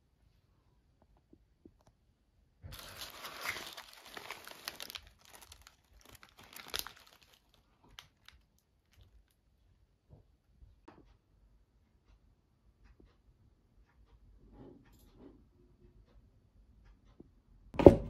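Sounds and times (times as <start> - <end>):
wrapping crinkling: 2.7 - 9.4.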